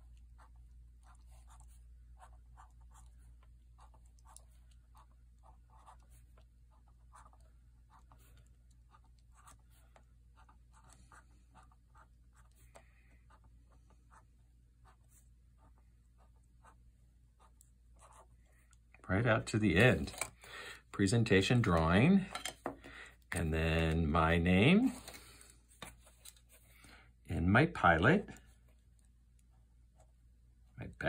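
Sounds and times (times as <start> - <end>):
pen scratching on paper: 0.0 - 16.8, 17.4 - 18.5.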